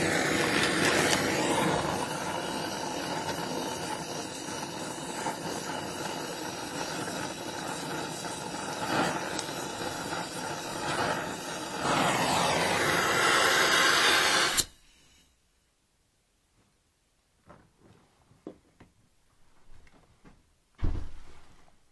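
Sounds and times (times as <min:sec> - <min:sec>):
sharp pop of torch: 0:00.0 - 0:05.7, 0:07.0 - 0:14.8
gas torch flame hissing: 0:00.0 - 0:15.2.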